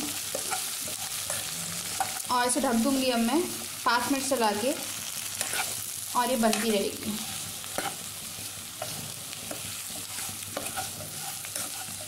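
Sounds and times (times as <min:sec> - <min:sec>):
vegetables sizzling in a pan: 0:00.0 - 0:12.0
spatula scraping a pan: 0:00.1 - 0:02.3, 0:04.8 - 0:12.0.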